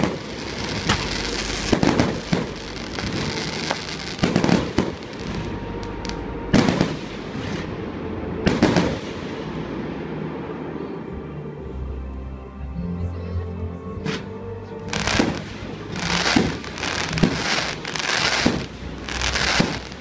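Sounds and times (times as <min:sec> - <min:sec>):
crackle of sparks: 0:00.0 - 0:06.8, 0:16.0 - 0:20.0
firework bangs: 0:00.0 - 0:07.8, 0:08.4 - 0:10.2, 0:14.9 - 0:20.0.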